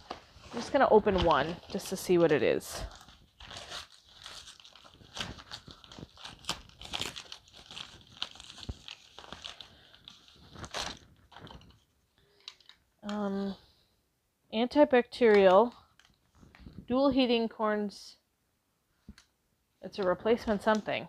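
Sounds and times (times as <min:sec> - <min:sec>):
package wrapping crinkling and tearing: 0:00.0 - 0:12.8.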